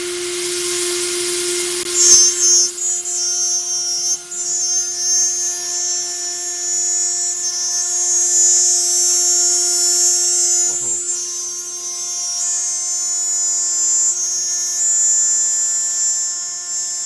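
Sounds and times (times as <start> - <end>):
router spindle whine: 0.0 - 17.0
shrill squeal of cutting metal: 0.0 - 17.0.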